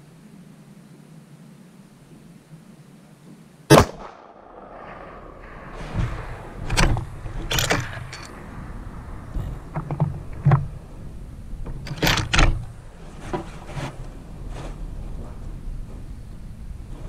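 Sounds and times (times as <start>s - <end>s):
rifle shot: 3.7s - 8.5s.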